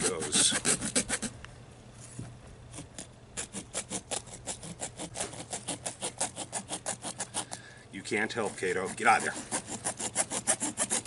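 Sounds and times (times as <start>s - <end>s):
hacksaw sawing metal: 0.0s - 1.3s, 3.0s - 7.5s, 8.1s - 11.0s.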